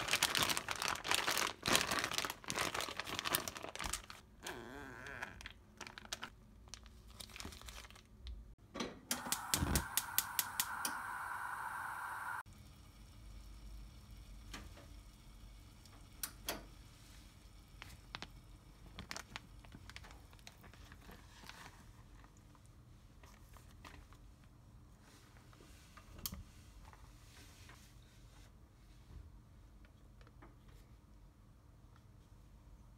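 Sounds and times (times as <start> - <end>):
plastic bag crinkling: 0.0 - 4.3, 5.1 - 8.2, 18.9 - 22.3
low steady hum: 8.3 - 21.2.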